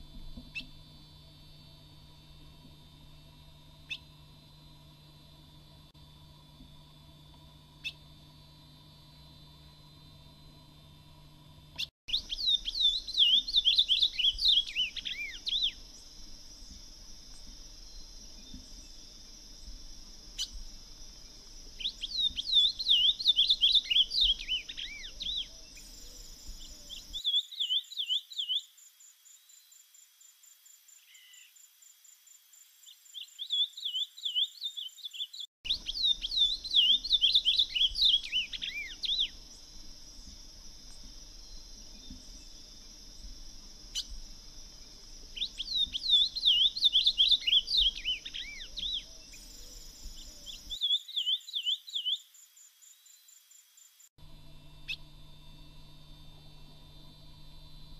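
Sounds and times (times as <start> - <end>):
high insect hum: 0.0 - 57.9
pulsed insect trill: 6.9 - 27.2, 35.7 - 50.8, 52.6 - 57.9
bird singing whistled notes: 12.1 - 15.8, 21.8 - 28.7, 33.1 - 40.3, 44.8 - 52.3.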